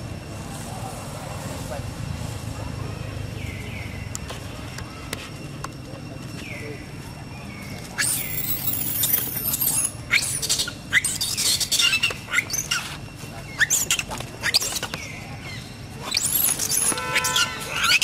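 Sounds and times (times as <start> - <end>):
lower tuneful monkey call: 8.0 - 14.8, 15.5 - 18.0
monkeys squealing: 8.0 - 18.0.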